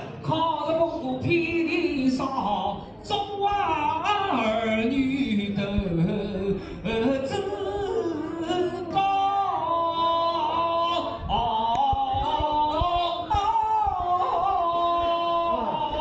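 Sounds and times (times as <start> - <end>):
person singing: 0.0 - 16.0.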